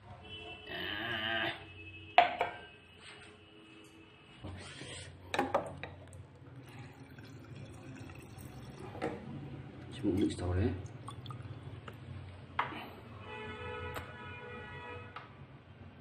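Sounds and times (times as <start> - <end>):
water running into a glass: 6.1 - 12.0.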